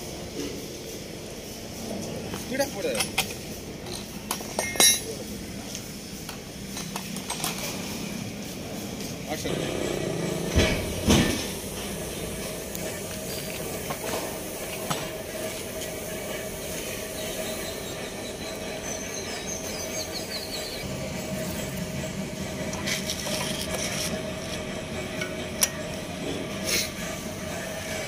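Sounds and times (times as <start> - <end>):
steady hum: 7.6 - 28.0
metal rubbing and scraping: 20.8 - 28.0.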